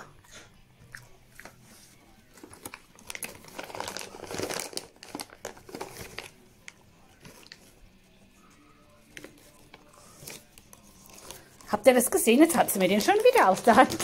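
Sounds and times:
plastic bag crinkling: 2.4 - 6.4, 12.5 - 14.0.

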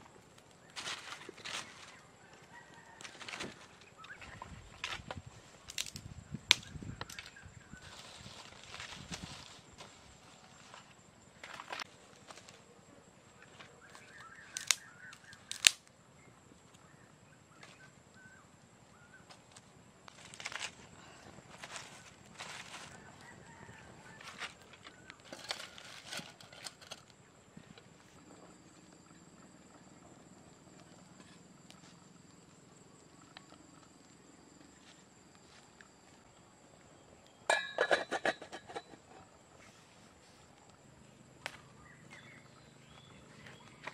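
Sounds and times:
sticks cracking in wood fire: 5.7 - 7.3, 14.5 - 15.9
faint bird chirps: 13.4 - 15.5
metal pot lid clanking: 37.5 - 39.2.

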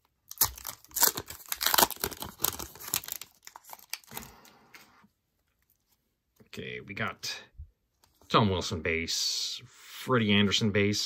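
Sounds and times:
foil wrapper tearing and crinkling: 0.2 - 4.3.

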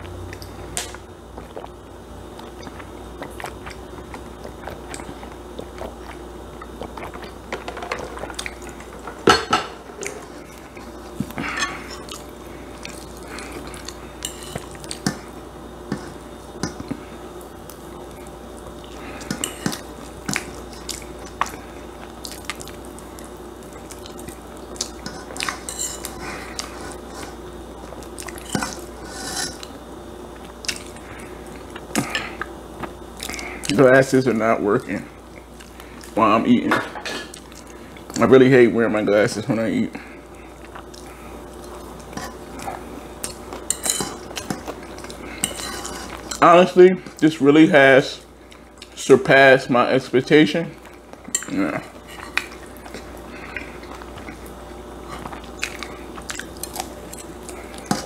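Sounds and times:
chewing: 2.4 - 7.4, 10.0 - 17.0, 17.6 - 33.8, 40.4 - 46.4, 50.8 - 58.0
utensil scraping ceramic plate: 28.5 - 29.7.

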